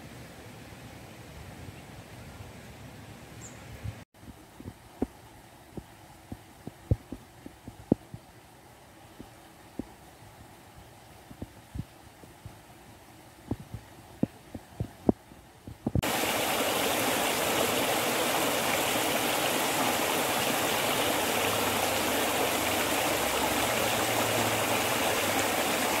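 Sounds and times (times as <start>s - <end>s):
soft low thumps: 3.9s - 8.4s, 13.4s - 16.1s
stream water spilling into pool: 16.0s - 26.0s.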